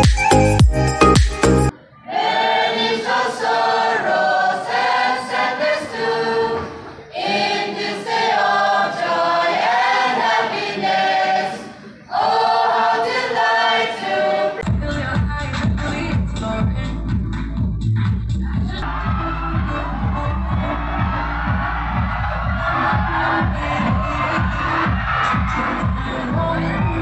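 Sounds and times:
electronic music: 0.0s - 1.7s, 14.6s - 27.0s
mixed choir singing: 2.0s - 14.6s, 18.8s - 27.0s.

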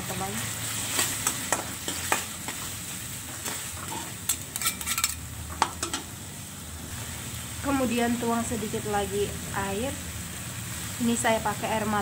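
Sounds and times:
vegetables sizzling in a wok: 0.0s - 12.0s
metal spatula scraping a wok: 3.4s - 5.2s
metal clicks on a pan: 3.9s - 6.1s.

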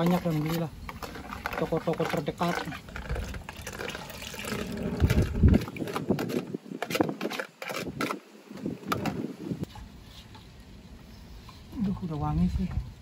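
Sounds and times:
low rumble: 4.4s - 5.8s.

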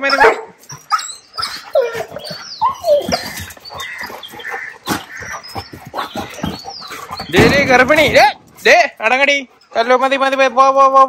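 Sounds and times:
dogs barking: 0.0s - 7.8s
dogs whining and yipping: 0.0s - 8.7s.

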